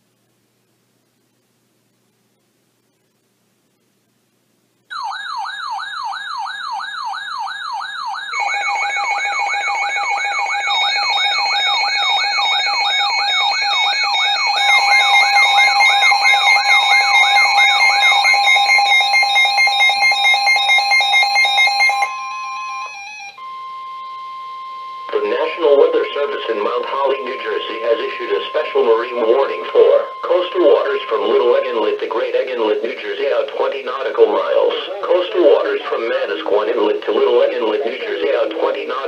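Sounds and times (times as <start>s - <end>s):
warbling siren: 4.9s - 32.8s
pulsed beeping tones: 8.2s - 39.0s
steady alert tone: 25.1s - 38.4s.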